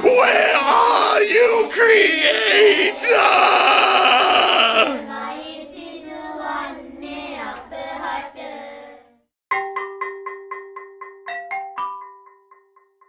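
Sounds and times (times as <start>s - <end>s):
high voice wailing: 0.0s - 5.0s
mallet percussion notes: 9.5s - 13.0s.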